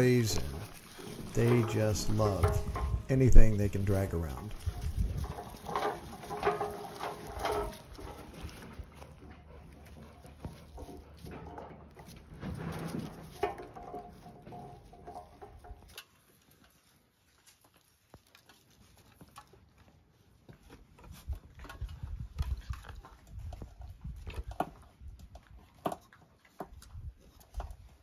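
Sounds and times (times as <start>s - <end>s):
low thumps: 0.0s - 5.5s
sharp clicks of paws: 0.0s - 28.0s.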